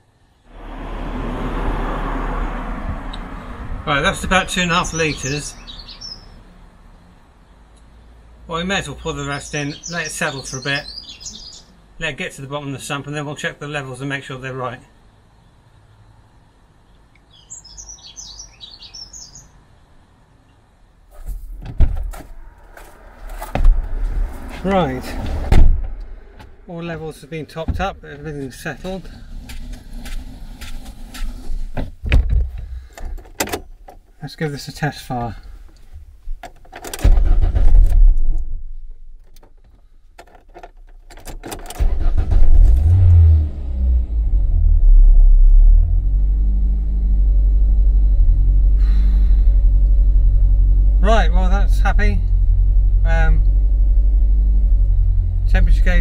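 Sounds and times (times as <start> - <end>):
car engine starting and running: 0.5 - 6.8, 21.2 - 56.0
small birds chirping: 4.2 - 6.4, 8.7 - 11.8, 16.6 - 20.7
loud knocks and clunks: 21.5 - 22.3, 23.5 - 23.9, 25.2 - 26.6, 27.6 - 28.0, 31.7 - 33.7, 36.4 - 38.6
ignition keys clicking and jingling: 36.4 - 37.1, 40.2 - 41.9.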